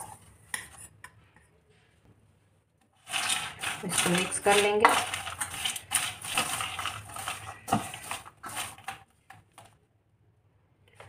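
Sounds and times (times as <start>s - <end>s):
spoon scraping metal bowl: 3.0s - 9.0s.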